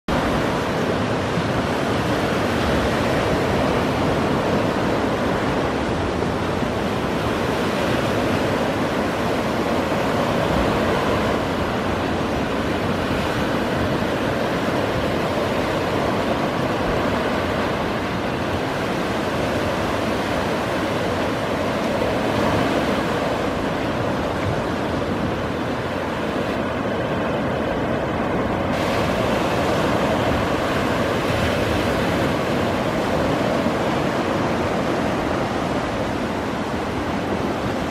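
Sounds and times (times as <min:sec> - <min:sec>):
surf breaking on beach: 0:00.1 - 0:37.9.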